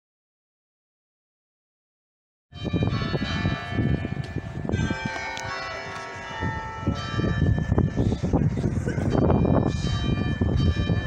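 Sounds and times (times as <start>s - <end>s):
church bells ringing: 2.6s - 11.0s.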